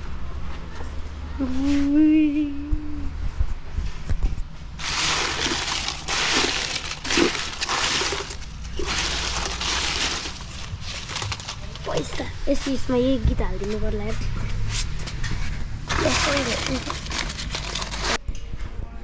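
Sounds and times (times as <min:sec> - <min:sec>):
person humming: 0:01.4 - 0:03.1
paper banknotes rustling: 0:04.8 - 0:12.8, 0:15.9 - 0:18.2.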